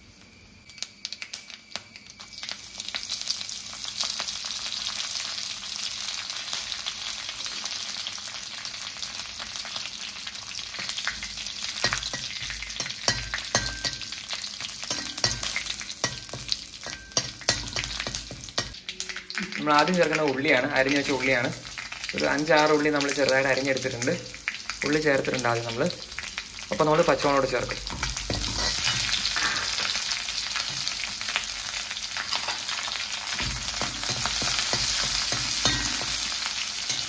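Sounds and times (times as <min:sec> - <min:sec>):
spices sizzling in oil: 0:00.0 - 0:37.0
seeds popping in hot oil: 0:00.6 - 0:05.3, 0:05.9 - 0:37.0
spoon knocking and stirring in pan: 0:11.8 - 0:18.8, 0:27.9 - 0:30.0, 0:33.4 - 0:37.0.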